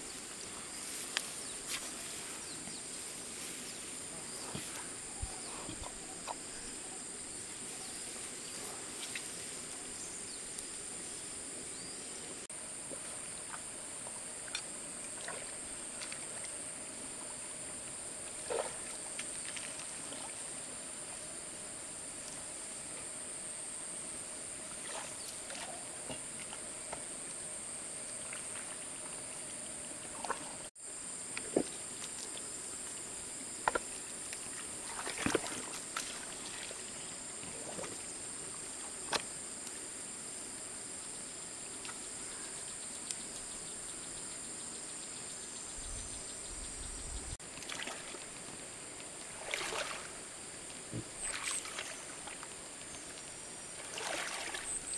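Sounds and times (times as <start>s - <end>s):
muddy water splashing: 14.4s - 16.6s, 18.4s - 20.6s, 24.7s - 26.7s, 30.1s - 30.6s, 34.5s - 38.1s, 47.4s - 54.9s.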